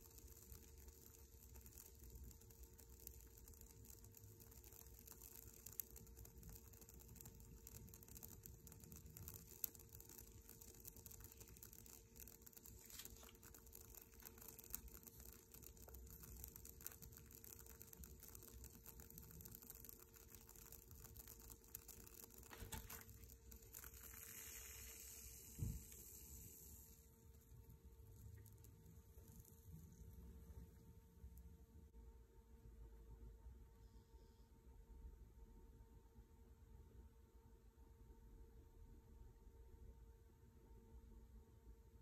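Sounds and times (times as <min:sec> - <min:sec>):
ticks and crackles of sparking metal: 0:00.0 - 0:31.5
faint steady hum: 0:00.0 - 0:42.0.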